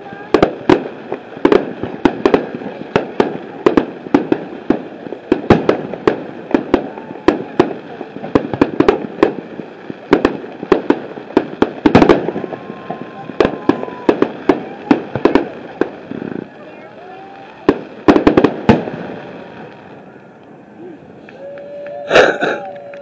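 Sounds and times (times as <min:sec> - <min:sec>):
fireworks bangs and pops: 0:00.0 - 0:20.6.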